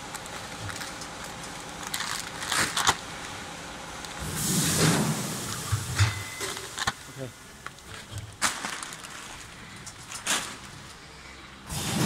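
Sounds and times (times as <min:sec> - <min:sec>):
plastic bag crinkling: 0:00.0 - 0:03.3, 0:08.3 - 0:10.9
packing machine humming: 0:00.0 - 0:12.0.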